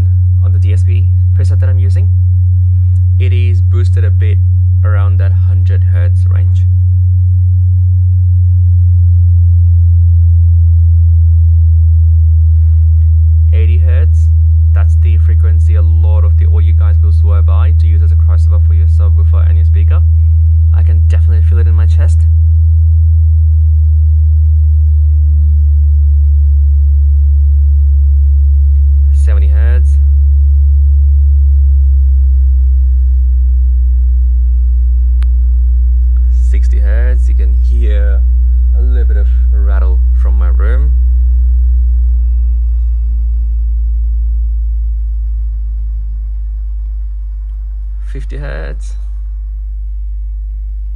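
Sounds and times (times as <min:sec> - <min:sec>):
man speaking: 0:00.0 - 0:02.2, 0:03.1 - 0:06.7, 0:13.5 - 0:22.4, 0:29.0 - 0:30.2, 0:36.2 - 0:41.0, 0:48.0 - 0:49.1
deep sine tone sweep: 0:00.0 - 0:50.9.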